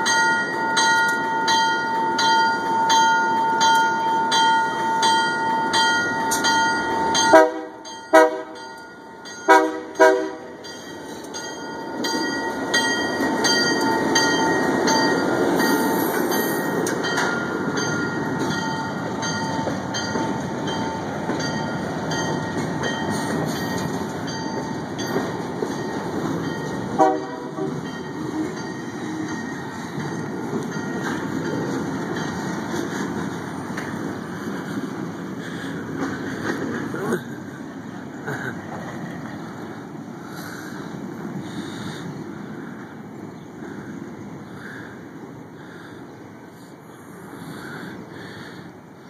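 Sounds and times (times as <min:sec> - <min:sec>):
crossing bell ringing: 0:00.0 - 0:38.2
locomotive engine rumbling: 0:00.0 - 0:49.0
locomotive air horn blasts: 0:07.3 - 0:08.6, 0:09.5 - 0:10.6, 0:26.9 - 0:27.8.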